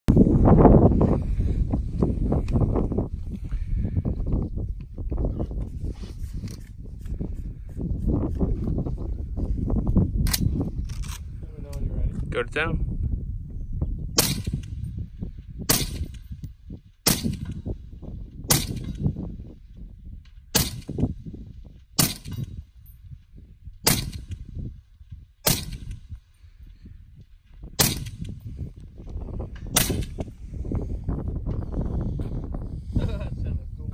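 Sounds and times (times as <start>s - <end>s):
wind rumble on microphone: 0.1s - 33.9s
suppressed rifle shots: 14.2s - 14.8s, 15.7s - 16.2s, 17.0s - 17.7s, 18.5s - 19.1s, 20.5s - 21.1s, 22.0s - 22.6s, 23.8s - 24.4s, 25.4s - 26.1s, 27.8s - 28.4s, 29.6s - 30.3s.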